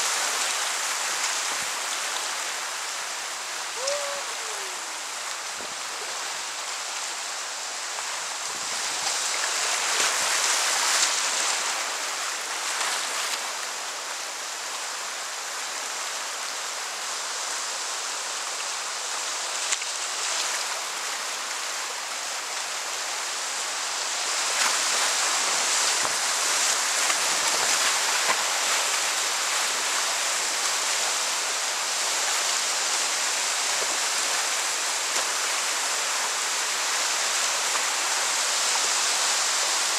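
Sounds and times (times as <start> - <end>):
whitewater rushing: 0.0 - 39.9
paddle splashes: 24.1 - 39.9.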